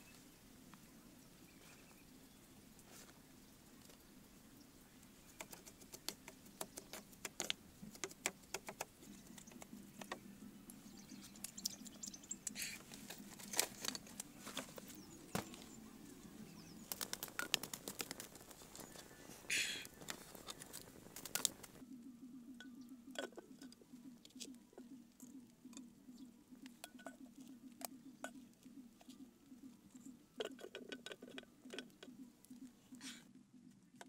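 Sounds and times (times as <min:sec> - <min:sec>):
wood fire crackling: 0:19.8 - 0:21.8.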